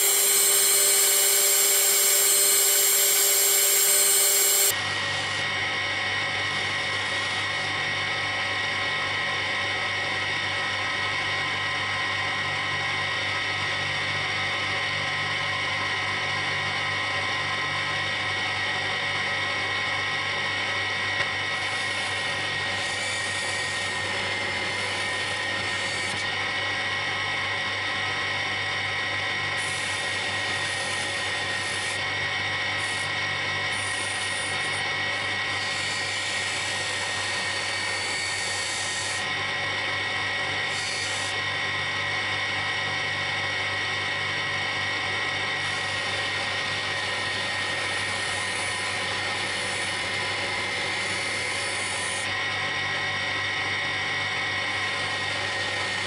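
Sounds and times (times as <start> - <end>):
metal part polished on mop: 0.0 - 4.8
buffing machine hum and whine: 0.0 - 13.8, 15.6 - 56.0.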